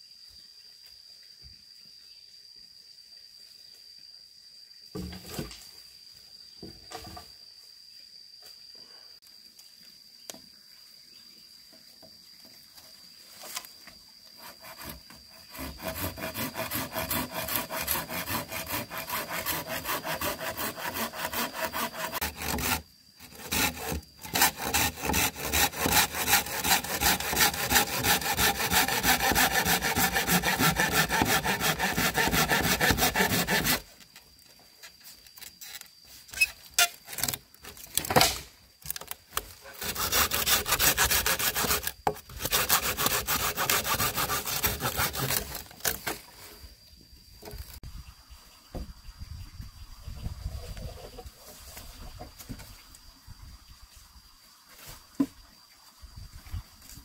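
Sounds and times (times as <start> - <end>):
hand saw cutting wood: 14.4 - 33.9, 39.6 - 46.2.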